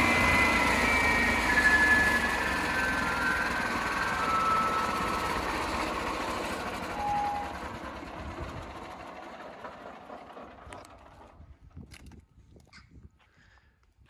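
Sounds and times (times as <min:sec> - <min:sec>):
brief whine: 0:00.0 - 0:05.9, 0:06.8 - 0:07.8
log saw engine running down: 0:00.0 - 0:11.5.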